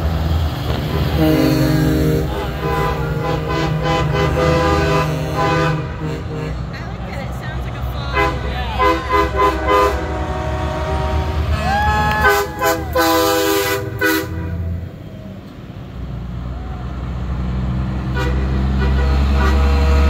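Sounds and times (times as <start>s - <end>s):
diesel truck engine rumble: 0.0s - 20.0s
truck air horn blasts: 0.7s - 7.0s, 8.1s - 15.0s, 18.0s - 20.0s.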